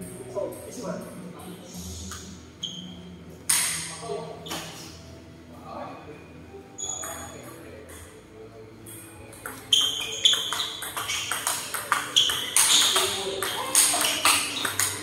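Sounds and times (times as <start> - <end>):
table tennis ball hits: 3.5 - 3.9, 9.3 - 15.0.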